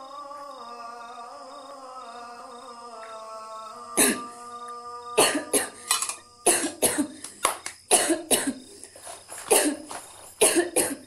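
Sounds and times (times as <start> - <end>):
woman coughing: 4.0 - 4.3, 5.2 - 7.2, 7.9 - 8.6, 9.5 - 11.0.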